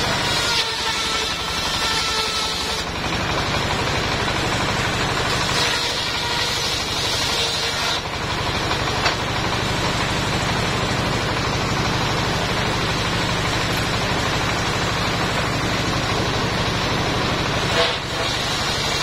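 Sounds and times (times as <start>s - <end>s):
saw blade spinning: 0.0s - 10.3s
sawmill engine running: 0.0s - 19.0s.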